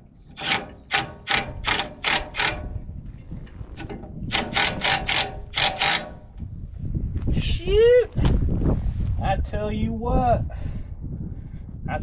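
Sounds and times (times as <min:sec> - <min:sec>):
impact driver tightening a bolt: 0:00.3 - 0:02.7, 0:03.8 - 0:06.4.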